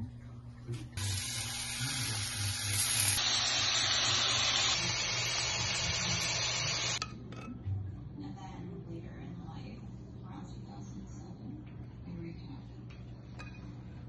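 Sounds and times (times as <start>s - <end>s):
food sizzling on a griddle: 1.0s - 7.0s.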